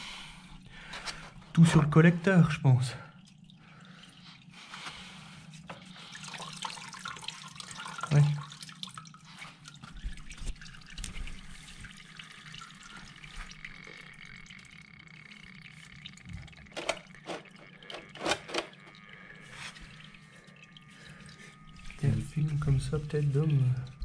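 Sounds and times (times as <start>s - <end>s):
oil dripping into drain pan: 6.2s - 18.0s.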